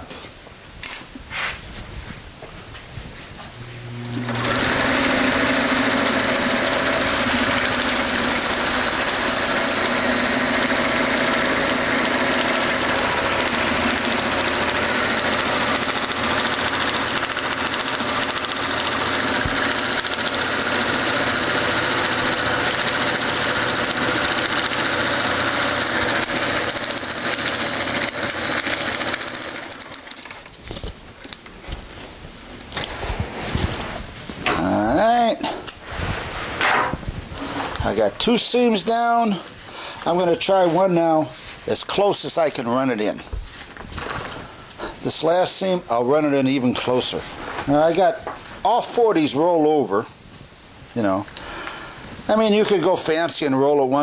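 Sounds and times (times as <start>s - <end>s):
sewing machine running: 3.6s - 30.5s.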